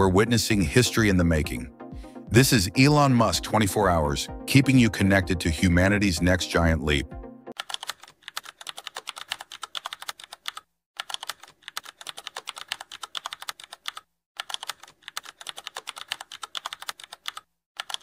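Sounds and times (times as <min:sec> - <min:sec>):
keyboard typing clicks: 0:07.6 - 0:18.0.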